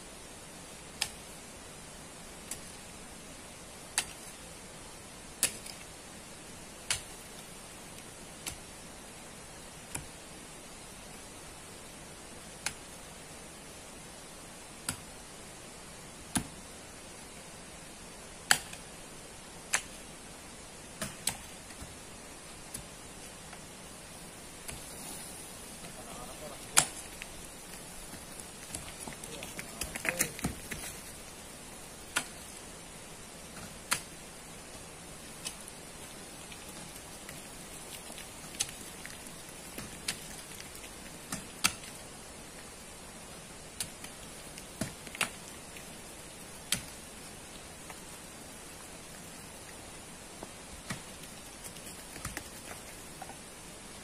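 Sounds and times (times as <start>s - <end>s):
steady hiss: 0.0s - 54.0s
digging tools striking sand and gravel: 5.4s - 5.9s, 21.0s - 22.0s, 24.5s - 32.6s, 33.5s - 42.1s, 43.6s - 48.3s, 50.8s - 52.6s.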